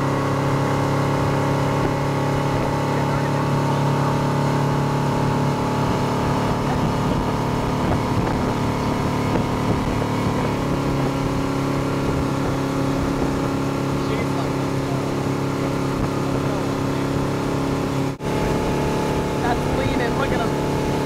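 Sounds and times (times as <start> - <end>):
churning wake water: 0.0 - 21.0
motorboat engine running: 0.0 - 21.0
wind rushing: 4.2 - 14.0.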